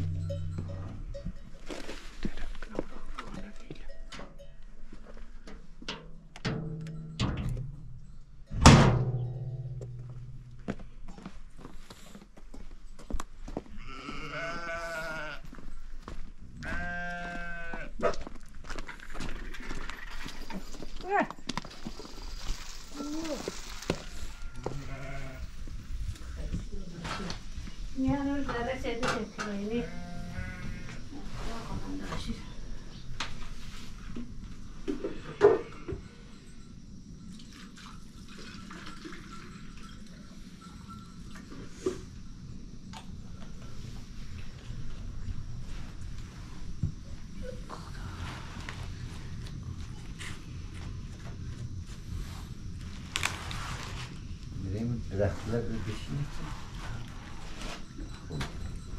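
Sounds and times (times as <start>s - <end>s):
sheep or goat bleating: 13.8s - 15.5s, 16.6s - 18.0s, 24.0s - 25.5s, 29.8s - 31.0s
water trickling into metal pot: 37.3s - 40.0s.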